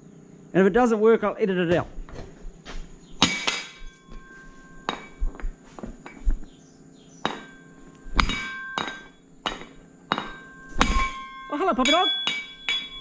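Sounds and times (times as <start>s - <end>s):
hammer striking metal: 3.2s - 5.4s, 7.2s - 13.0s.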